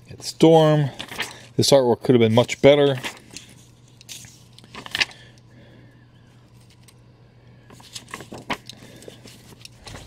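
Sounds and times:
paper pages rustling: 0.2 - 1.5, 2.2 - 5.3, 7.7 - 10.0.

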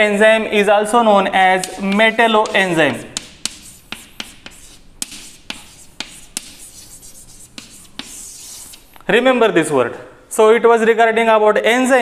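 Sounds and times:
chalk on blackboard: 1.4 - 9.1.

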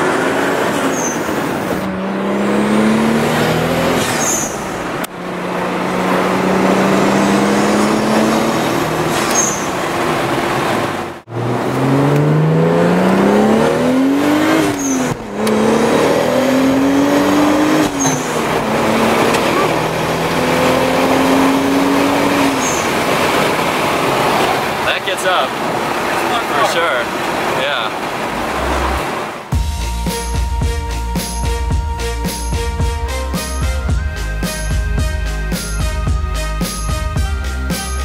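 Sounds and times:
car engine accelerating through gears: 0.0 - 25.0, 25.6 - 29.6.

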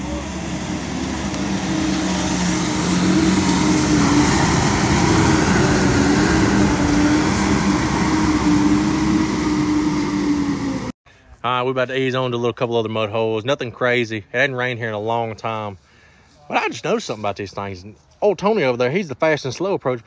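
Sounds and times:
steady rushing noise: 0.0 - 10.9
vehicle engine running under load: 0.0 - 11.0.

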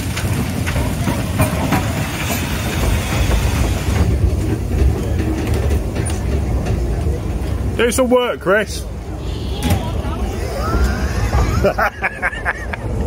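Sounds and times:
steam train rumble: 0.0 - 13.0
wheels clicking on rails: 0.0 - 13.0
steam hiss: 0.2 - 4.4.

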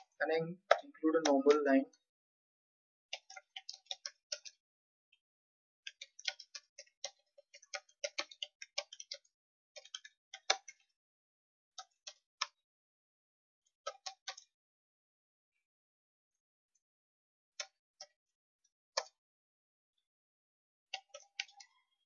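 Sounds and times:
keyboard typing: 3.1 - 4.6, 5.9 - 10.9, 21.0 - 22.0.

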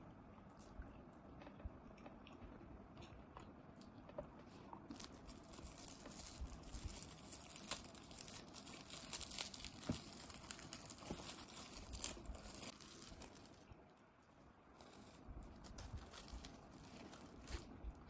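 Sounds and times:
plastic wrapper crinkling: 4.9 - 13.8, 14.8 - 18.0.

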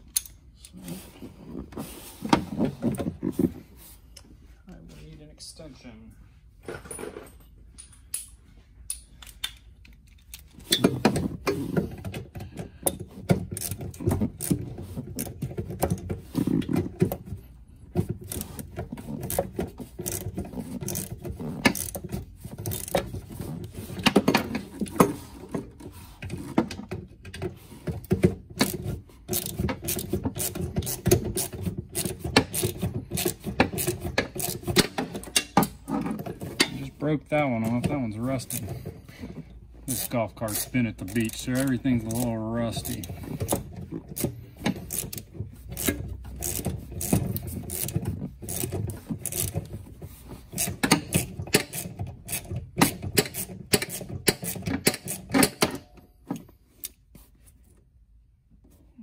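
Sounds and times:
ratchet wrench clicking: 20.0 - 22.0, 22.6 - 23.1, 28.6 - 35.5, 39.9 - 43.6, 44.2 - 49.6, 50.6 - 55.6.

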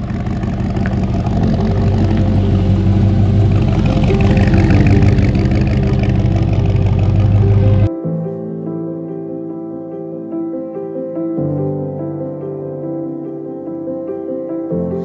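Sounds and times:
car engine revving: 0.0 - 7.9.

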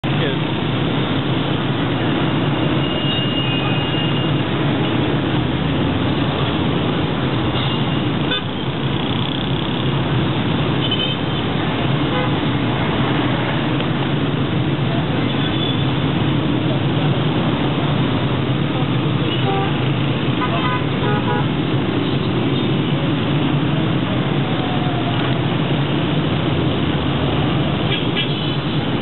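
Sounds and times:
traffic engines and tyres: 0.0 - 29.0.

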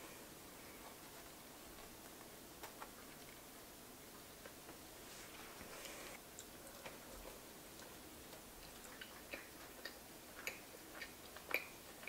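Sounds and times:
mouth clicks of chewing: 6.3 - 12.0.

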